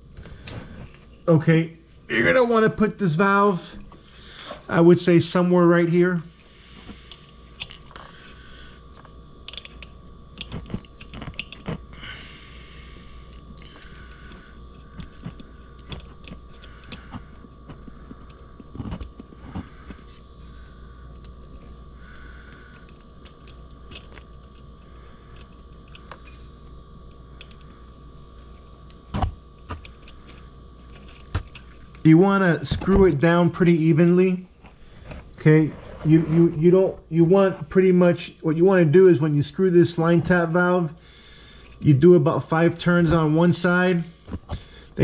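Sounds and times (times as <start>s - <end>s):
faint steady hum: 0.0s - 45.0s
metal parts clicking and scraping: 9.4s - 11.7s.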